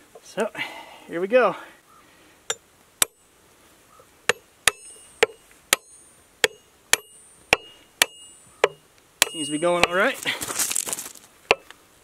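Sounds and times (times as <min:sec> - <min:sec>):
hammer striking metal spike: 0:04.3 - 0:10.0.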